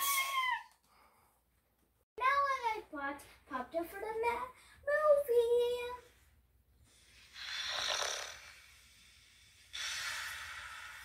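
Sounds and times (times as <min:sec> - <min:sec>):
child pretend snoring: 0:07.3 - 0:08.9.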